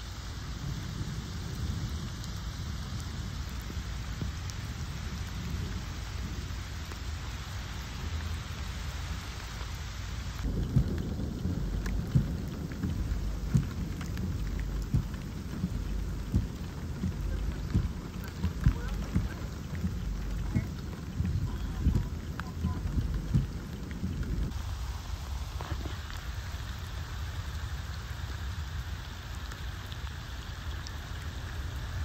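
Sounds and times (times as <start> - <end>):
rain on pavement and foliage: 0.0 - 32.0
low thumps: 10.4 - 24.6.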